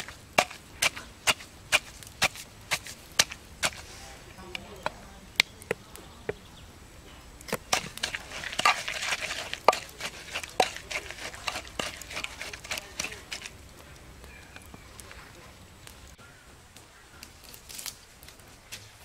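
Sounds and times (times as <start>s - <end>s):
pestle pounding in wooden mortar: 0.0s - 3.9s, 7.5s - 13.6s.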